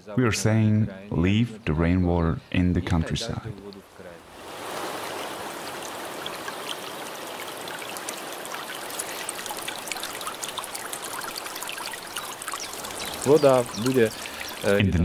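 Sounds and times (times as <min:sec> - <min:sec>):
water trickling and dripping: 0:03.5 - 0:15.0.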